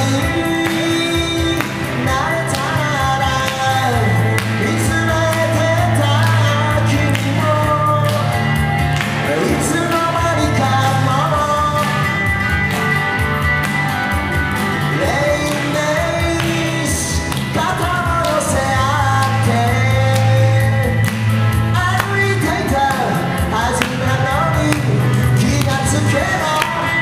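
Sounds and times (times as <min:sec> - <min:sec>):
person singing: 0:00.0 - 0:13.5, 0:14.3 - 0:27.0
electric guitar: 0:00.0 - 0:27.0
low bass notes: 0:00.0 - 0:27.0.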